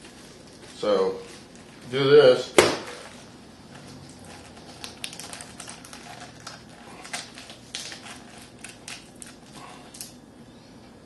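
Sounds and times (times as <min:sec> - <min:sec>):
lettuce leaves crackling: 0:03.0 - 0:10.1.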